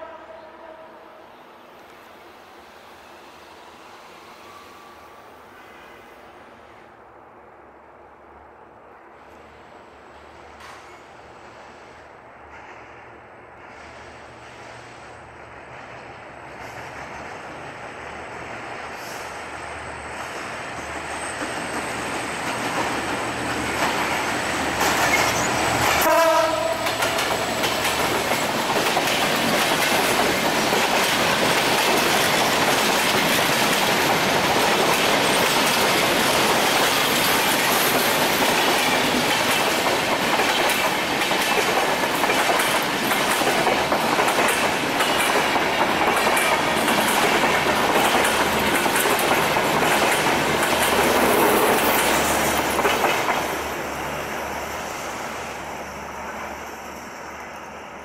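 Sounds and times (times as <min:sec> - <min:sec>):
train horn blast: 0:00.0 - 0:01.3, 0:26.0 - 0:27.5
diesel locomotive approaching: 0:00.0 - 0:58.0
train wheels clickety-clack on rails: 0:10.2 - 0:58.0.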